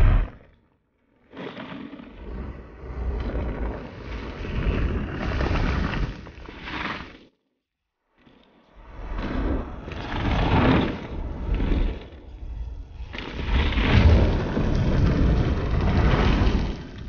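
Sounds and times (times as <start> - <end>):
forest fire rumbling rush: 0.0 - 0.4, 9.2 - 17.0.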